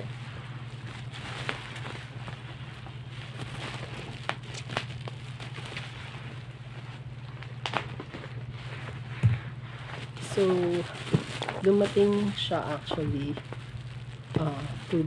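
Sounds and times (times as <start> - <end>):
bubble wrap rustling and crinkling: 0.0 - 15.0
steady low hum: 0.0 - 15.0.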